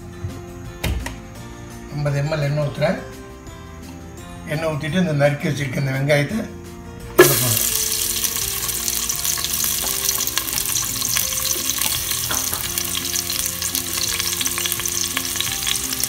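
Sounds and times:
frying crackling: 7.2s - 16.0s
onion sizzling in hot oil: 7.2s - 16.0s.

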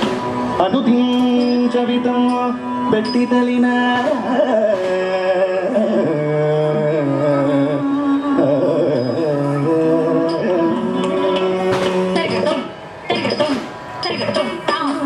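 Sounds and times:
percussion strokes: 0.0s - 6.0s.

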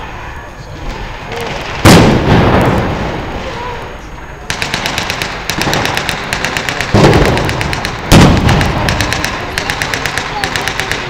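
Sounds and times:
heavy bangs: 0.8s - 3.8s, 4.5s - 11.0s
blank gunfire bursts: 1.5s - 3.0s, 4.5s - 11.0s.

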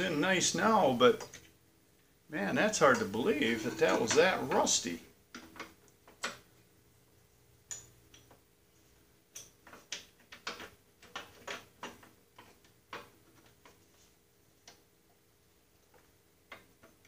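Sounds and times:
faint metal clicks and taps: 7.6s - 8.4s, 9.3s - 13.8s, 15.8s - 17.0s.

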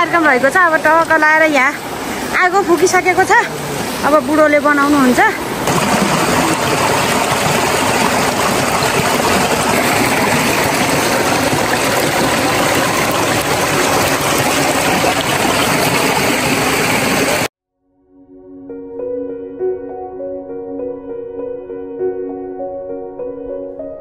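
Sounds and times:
stream water rushing: 0.0s - 17.5s.

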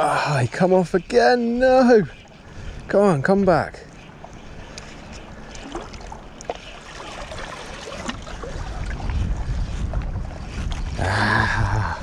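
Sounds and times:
wind rumble on microphone: 0.0s - 12.0s
water lapping among rocks: 4.3s - 10.0s.

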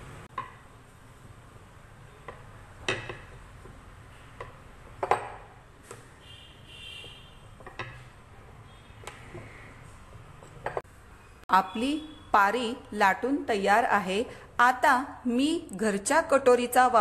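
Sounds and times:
rolling pin rolling dough: 0.3s - 6.2s
rolling pin clacking on counter: 4.4s - 5.5s.

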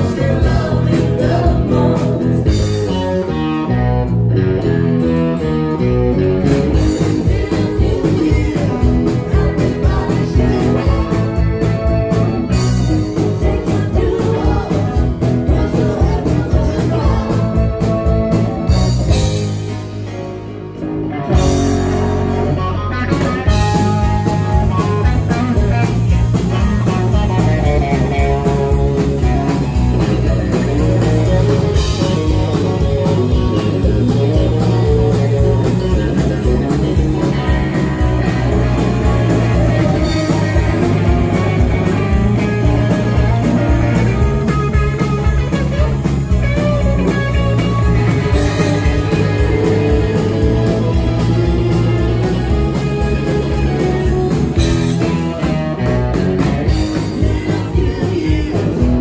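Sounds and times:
bass guitar: 0.0s - 59.0s
electric guitar: 0.0s - 59.0s
drum beat: 23.6s - 55.6s.

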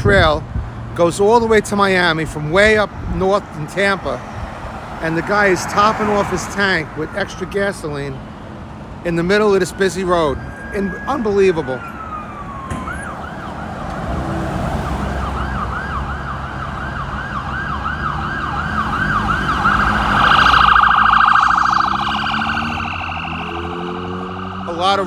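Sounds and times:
road traffic rumble: 0.0s - 25.0s
ambulance siren: 9.1s - 25.0s.

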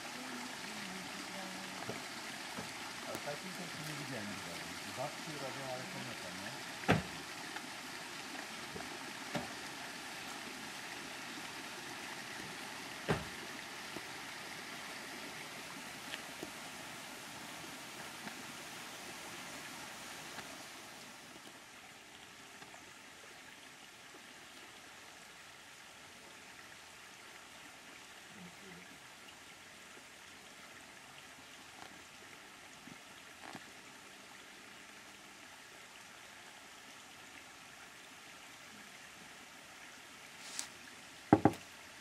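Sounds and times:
flowing water rushing: 0.0s - 42.0s
light knocks: 41.3s - 41.6s.

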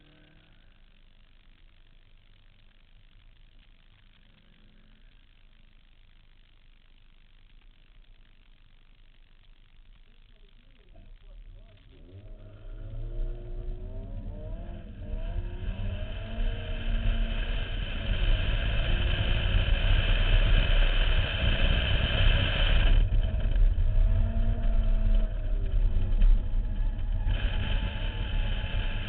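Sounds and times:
car engine revving: 11.6s - 29.0s.

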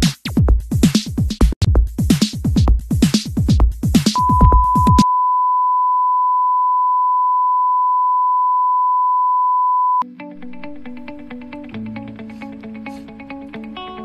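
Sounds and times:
electronic music: 4.2s - 5.1s
high test tone beep: 4.2s - 10.0s
plucked guitar music: 10.0s - 14.0s.

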